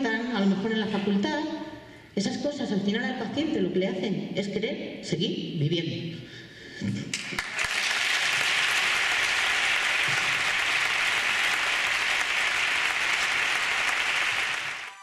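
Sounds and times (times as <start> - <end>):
audience applauding: 7.1 - 15.0.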